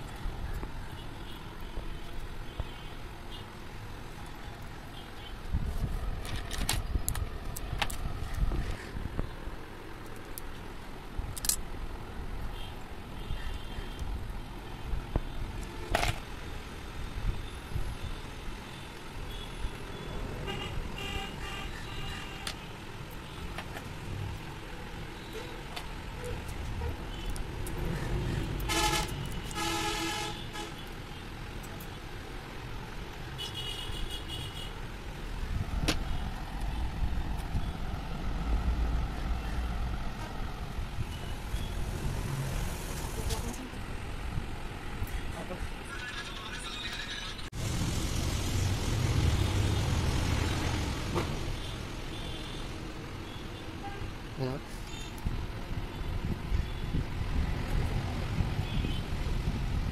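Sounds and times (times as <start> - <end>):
traffic rumble: 0.0 - 59.9
vehicle horns honking: 28.6 - 30.9.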